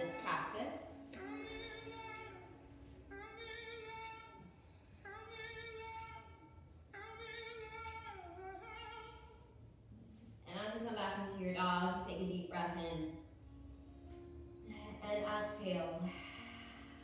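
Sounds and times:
person singing long slow notes: 0:16.0 - 0:17.0.

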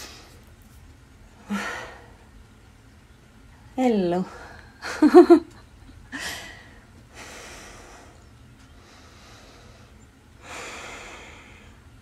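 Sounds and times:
woman breathing heavily: 0:01.4 - 0:02.3, 0:04.2 - 0:05.0, 0:06.0 - 0:12.0.

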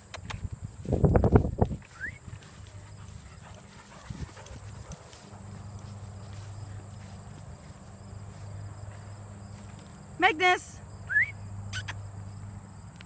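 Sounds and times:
footfalls on grass: 0:00.8 - 0:10.0.

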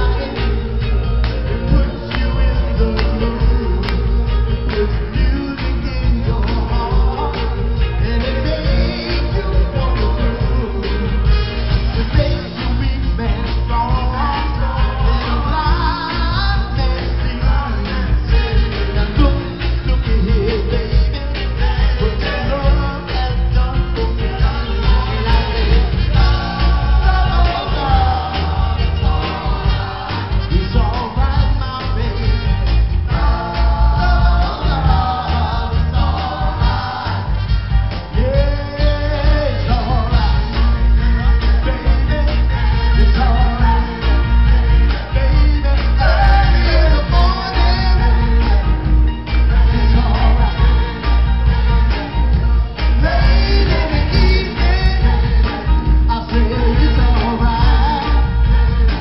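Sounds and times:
live band music: 0:00.0 - 0:59.0
loud steady bass: 0:00.0 - 0:59.0
male vocal group singing: 0:00.0 - 0:59.0
women singing: 0:20.6 - 0:31.6, 0:33.0 - 0:38.9.

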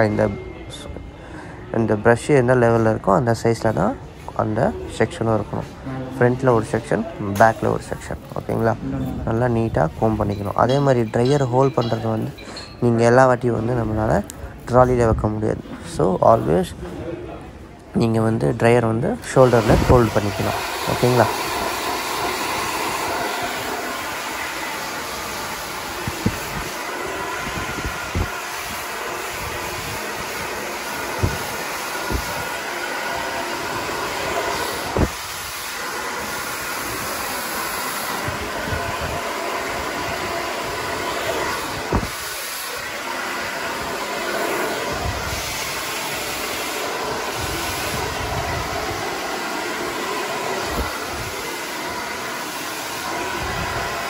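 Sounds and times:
hair dryer blowing: 0:19.2 - 0:54.0.

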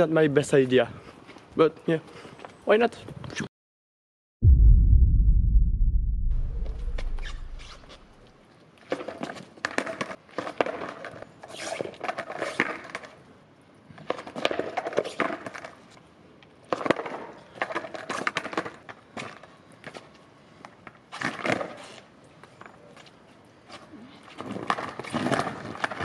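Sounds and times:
skateboard wheels rolling on asphalt: 0:08.4 - 0:26.0
skateboard clacks: 0:16.7 - 0:20.0, 0:24.4 - 0:26.0.

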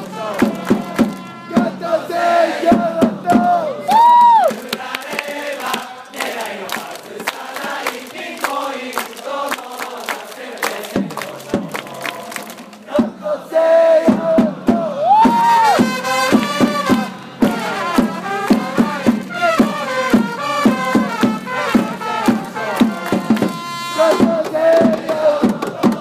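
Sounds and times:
trumpets playing melody: 0:00.0 - 0:02.4, 0:15.5 - 0:24.4
drums beating: 0:00.0 - 0:08.6, 0:10.6 - 0:26.0
crowd singing: 0:00.0 - 0:26.0
fans clapping: 0:00.2 - 0:01.3, 0:03.9 - 0:12.9, 0:20.1 - 0:23.6.

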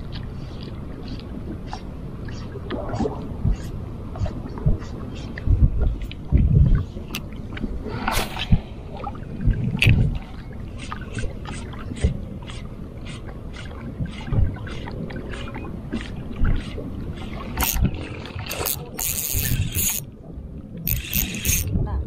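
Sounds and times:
wind buffeting microphone: 0:00.0 - 0:22.0
spinning reel ticking: 0:17.6 - 0:17.8, 0:18.5 - 0:20.1, 0:20.8 - 0:21.7.

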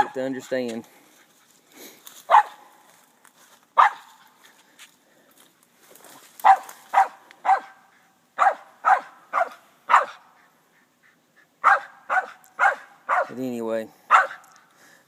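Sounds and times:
dog barking: 0:00.0 - 0:00.2, 0:02.3 - 0:02.6, 0:03.8 - 0:04.2, 0:06.4 - 0:10.4, 0:11.6 - 0:13.4, 0:14.1 - 0:14.6.

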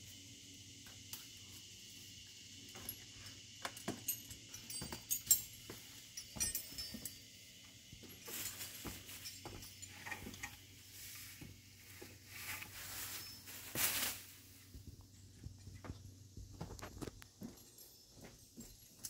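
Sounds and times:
insects chorus: 0:00.0 - 0:19.0
leaves rustling: 0:08.2 - 0:14.8.

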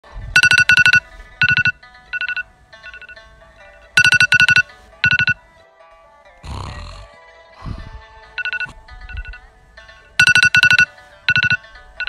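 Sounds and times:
electronic ringtone melody: 0:00.4 - 0:05.5, 0:08.3 - 0:12.0.

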